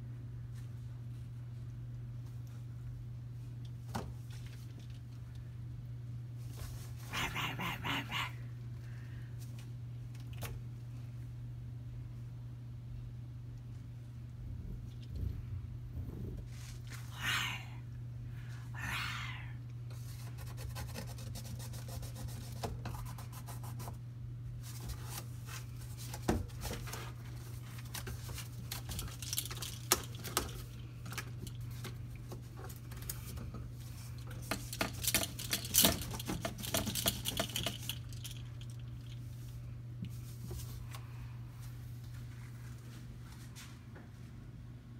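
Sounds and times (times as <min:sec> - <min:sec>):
steady low hum: 0:00.0 - 0:44.9
cat rustling and scratching: 0:14.8 - 0:17.1, 0:19.9 - 0:41.0.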